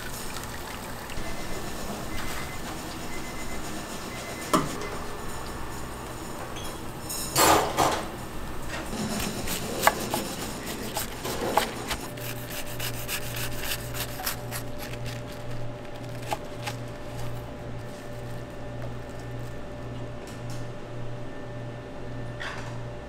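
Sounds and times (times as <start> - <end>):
low pulsing machine hum: 0.0 - 7.3, 8.0 - 23.0.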